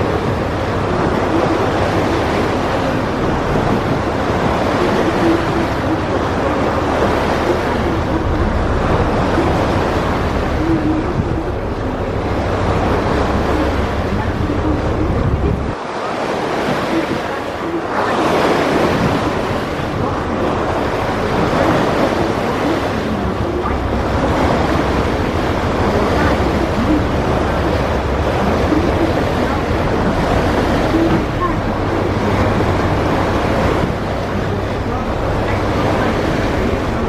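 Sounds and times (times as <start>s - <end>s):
river water rushing: 0.0s - 37.0s
wind buffeting microphone: 0.0s - 37.0s.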